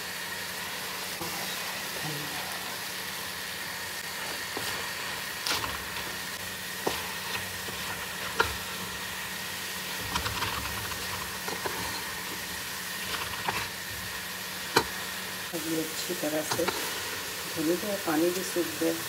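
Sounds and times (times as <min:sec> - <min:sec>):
meat sizzling in a pan: 0:00.0 - 0:19.0
spatula tapping and scraping pan: 0:06.8 - 0:08.6.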